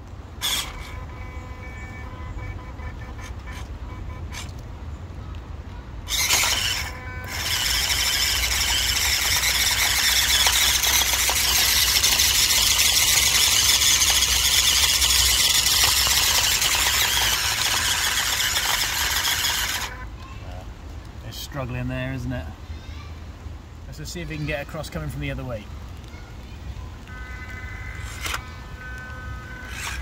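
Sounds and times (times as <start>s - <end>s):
small electric motor whining: 0.4s - 3.7s, 6.1s - 20.0s, 27.1s - 30.0s.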